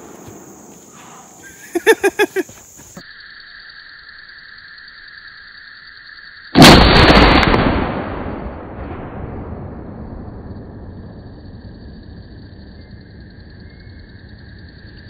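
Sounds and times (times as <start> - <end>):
high insect drone: 0.0 - 6.7, 10.5 - 15.0
shotgun shot: 6.6 - 9.4.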